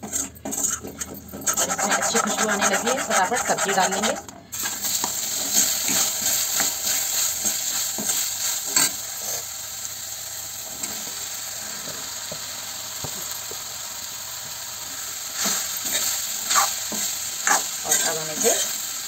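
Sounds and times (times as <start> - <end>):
metal spatula scraping pan: 0.0 - 9.4, 15.4 - 18.8
vegetables sizzling in hot oil: 1.4 - 19.0.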